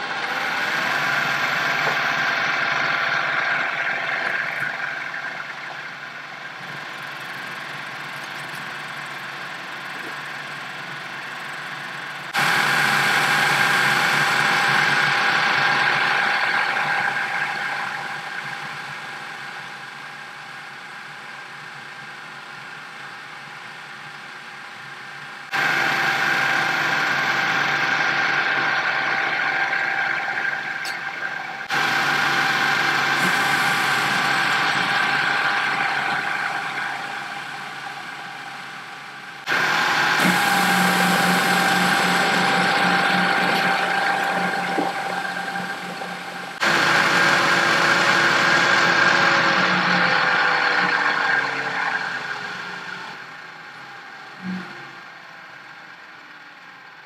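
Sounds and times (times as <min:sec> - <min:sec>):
machine high whine: 0:00.0 - 0:57.0.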